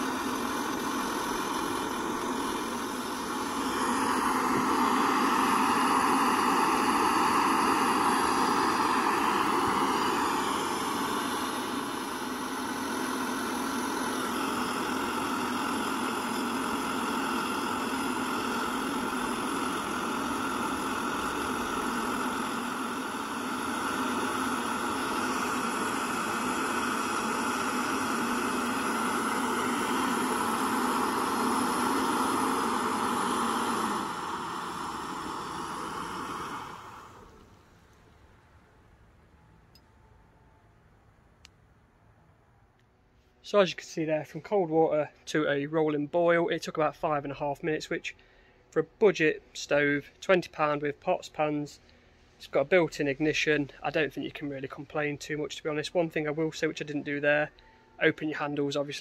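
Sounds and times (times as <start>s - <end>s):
water boiling: 0.0s - 37.6s
gas stove burner hissing: 0.0s - 39.9s.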